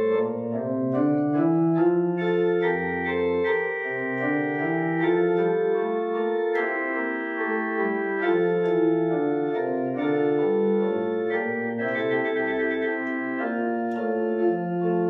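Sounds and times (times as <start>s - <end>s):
deep organ pedal note: 0.0s - 15.0s
pipe organ chords: 0.0s - 15.0s.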